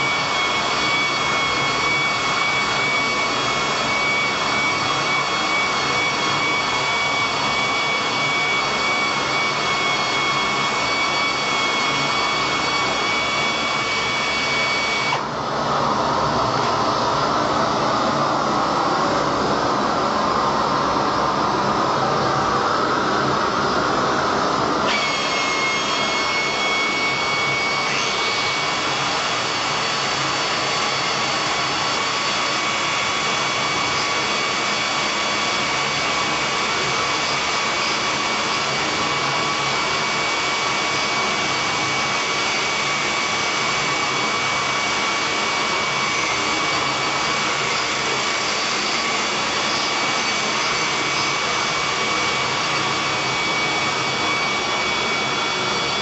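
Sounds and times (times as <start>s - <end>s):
angle grinder grinding metal: 0.0s - 15.2s, 24.8s - 34.8s.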